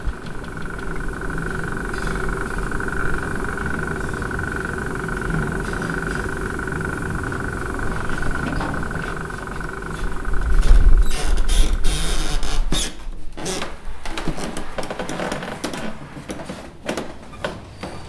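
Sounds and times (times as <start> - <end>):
loud low rumble: 0.0 - 12.7
mechanical hum with high tone: 0.0 - 18.0.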